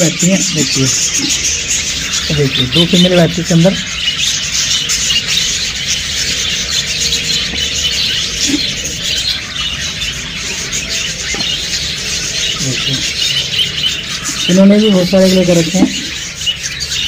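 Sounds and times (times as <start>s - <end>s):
budgerigars chattering: 0.0s - 17.0s.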